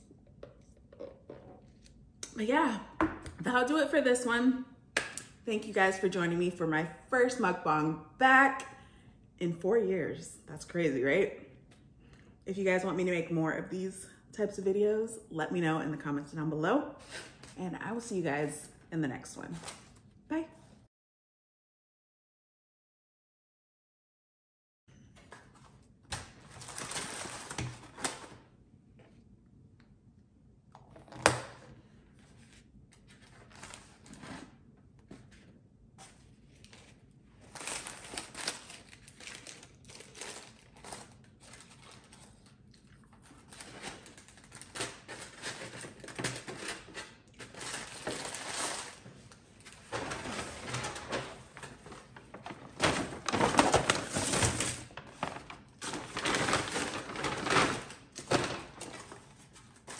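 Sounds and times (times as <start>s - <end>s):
paper rustling and crinkling: 25.2s - 28.4s, 30.9s - 59.9s.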